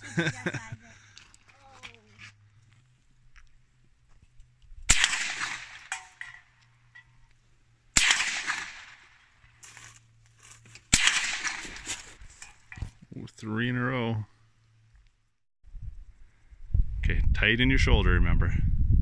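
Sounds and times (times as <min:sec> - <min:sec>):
rifle shots: 0:04.9 - 0:06.4, 0:08.0 - 0:09.2, 0:10.9 - 0:12.0.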